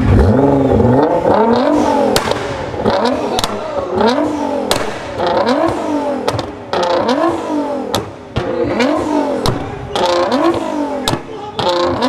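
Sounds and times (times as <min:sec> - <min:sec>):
car engine revving: 0:00.0 - 0:12.0
exhaust pops and cracks: 0:02.1 - 0:03.8, 0:04.7 - 0:08.8.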